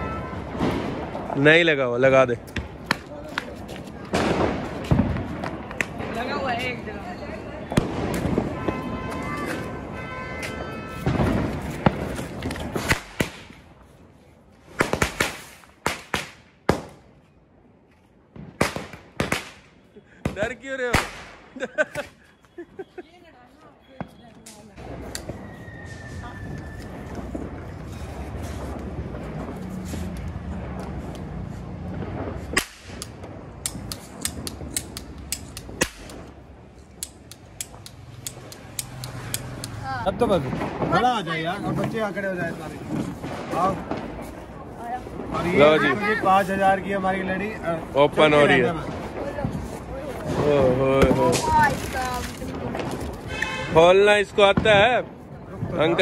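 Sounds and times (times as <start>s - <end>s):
firecrackers bursting: 0.0s - 17.2s, 18.2s - 56.0s
cap gun cracks: 32.6s - 36.3s.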